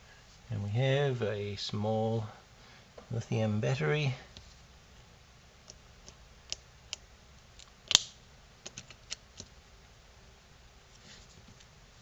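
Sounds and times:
plastic snap: 0:07.6 - 0:09.5.

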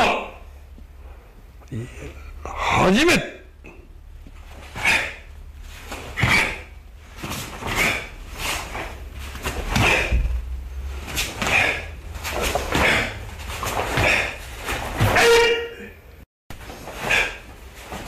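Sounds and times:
karate uniform snapping and swishing: 0:04.4 - 0:10.4, 0:11.0 - 0:15.4, 0:16.6 - 0:18.0.

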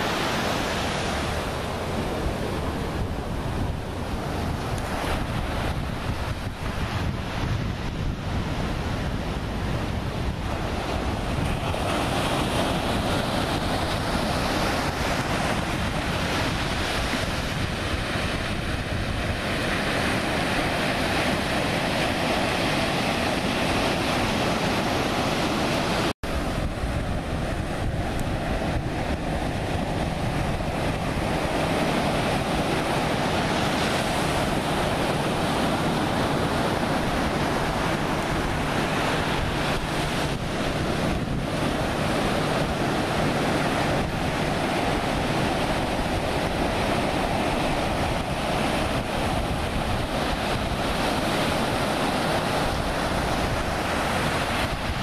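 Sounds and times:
ocean surf washing ashore: 0:00.0 - 0:55.0
wind buffeting microphone: 0:00.0 - 0:55.0.

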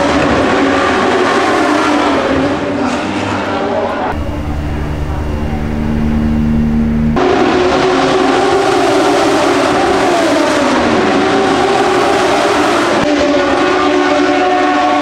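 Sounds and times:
motorcycle engines at high revs: 0:04.1 - 0:15.0.

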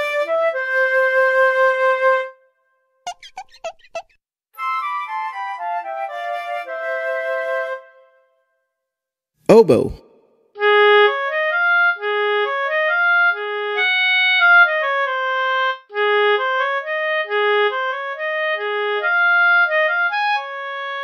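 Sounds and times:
oboe playing a lively melody: 0:04.6 - 0:08.0, 0:10.6 - 0:21.0.

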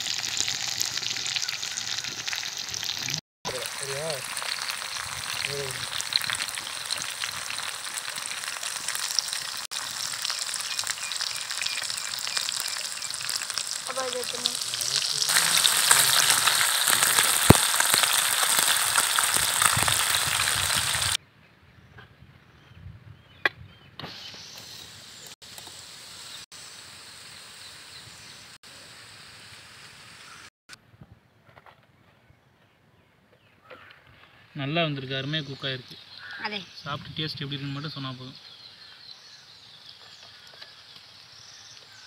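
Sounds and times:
fish sizzling in oil: 0:00.0 - 0:21.2.

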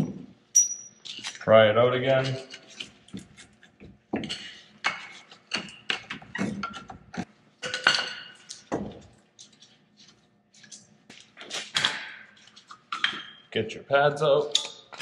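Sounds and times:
metal tools clinking and clanking: 0:00.0 - 0:01.5.

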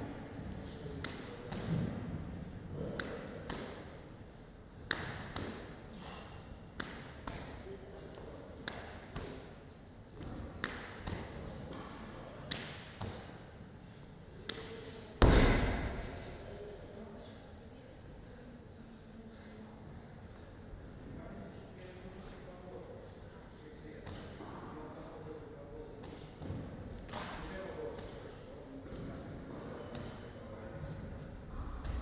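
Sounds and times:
medicine ball smacking wall: 0:15.2 - 0:16.0
medicine ball thud on rubber floor: 0:15.2 - 0:16.0.

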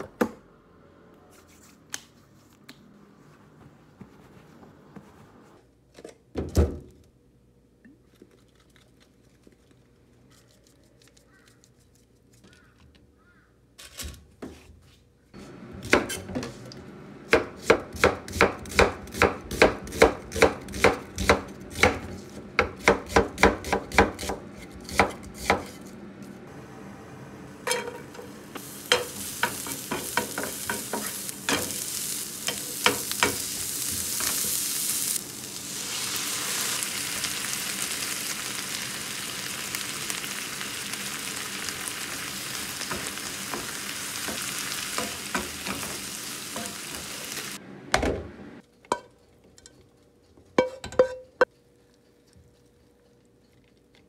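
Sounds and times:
onion sizzling in frying pan: 0:27.5 - 0:47.6.

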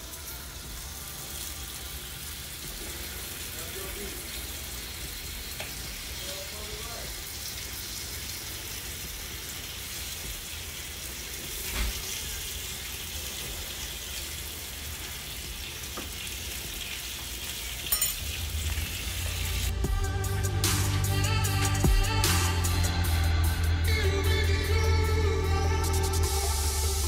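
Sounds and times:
bacon sizzling on griddle: 0:00.0 - 0:19.8.

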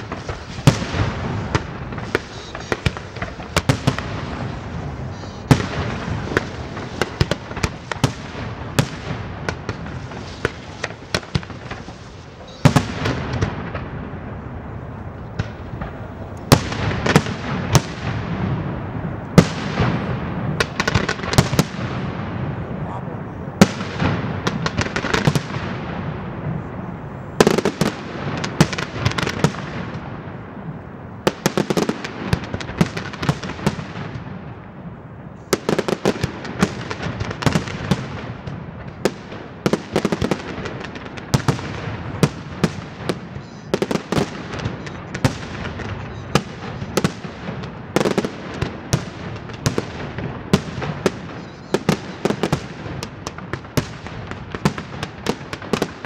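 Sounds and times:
firework shells bursting: 0:00.0 - 0:22.6
fireworks crackle: 0:00.0 - 0:56.0.

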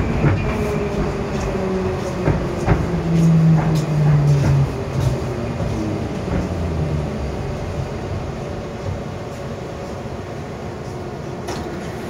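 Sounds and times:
train electric drive hum: 0:00.0 - 0:12.0.

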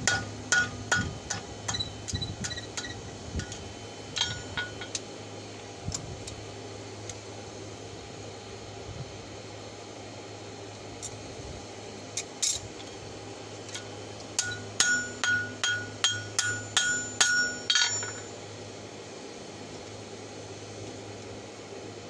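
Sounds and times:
hammer striking steel on anvil: 0:00.0 - 0:03.6, 0:04.2 - 0:05.0, 0:13.8 - 0:18.4.

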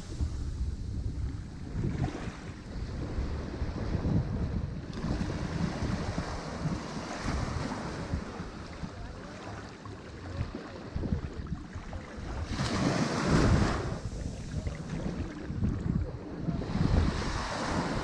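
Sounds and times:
low wind rumble on microphone: 0:00.0 - 0:18.0
sea surf washing onto shore: 0:04.9 - 0:18.0.

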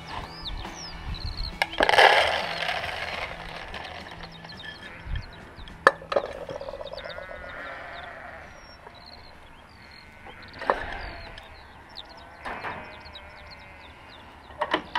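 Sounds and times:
small birds chirping: 0:00.0 - 0:14.9
bleat-like animal call: 0:01.8 - 0:05.6, 0:06.4 - 0:14.4.

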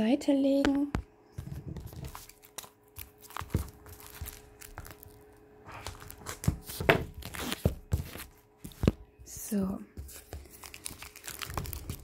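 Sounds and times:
plastic wrap crinkling and tearing: 0:01.8 - 0:08.9, 0:10.1 - 0:12.0.

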